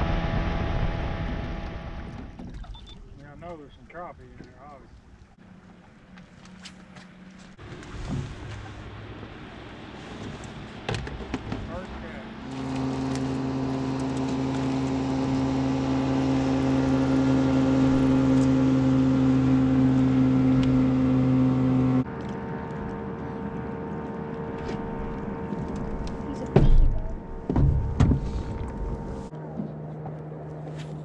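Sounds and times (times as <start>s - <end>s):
outboard motor running: 7.6s - 31.0s
loud thumps: 26.5s - 29.1s.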